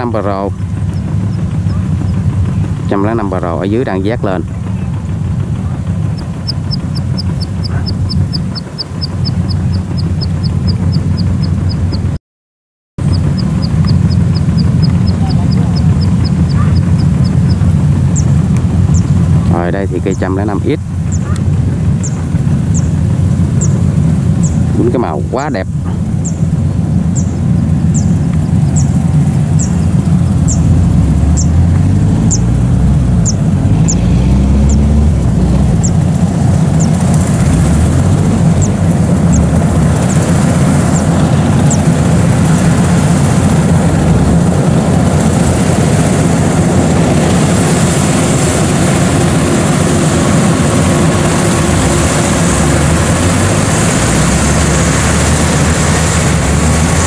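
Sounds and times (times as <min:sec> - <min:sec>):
combine harvester engine running: 0:00.0 - 0:12.2, 0:13.0 - 0:57.0.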